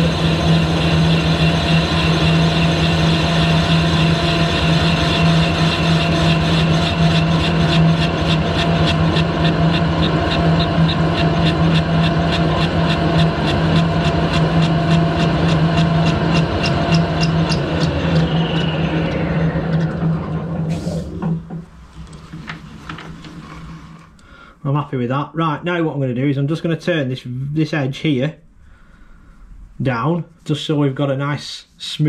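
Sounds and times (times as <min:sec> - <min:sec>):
lathe whine running down: 0:00.0 - 0:24.3
lathe geared hum: 0:00.0 - 0:24.4.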